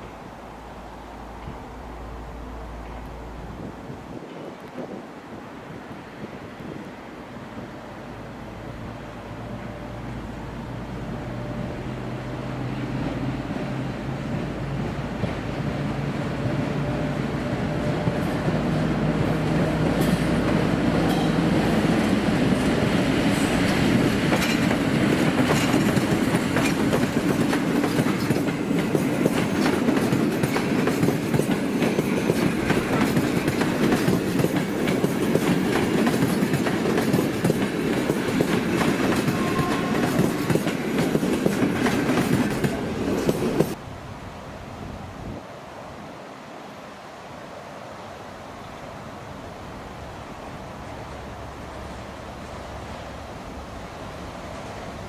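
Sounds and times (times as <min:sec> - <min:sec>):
passenger train rumbling past: 0:00.0 - 0:55.0
wheels clattering over rail joints: 0:19.4 - 0:43.8.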